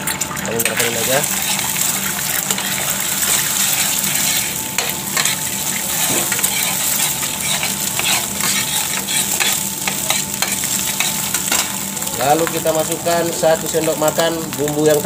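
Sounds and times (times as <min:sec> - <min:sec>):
egg sizzling in oil: 0:00.0 - 0:15.0
metal spoon scraping pan: 0:00.7 - 0:11.8.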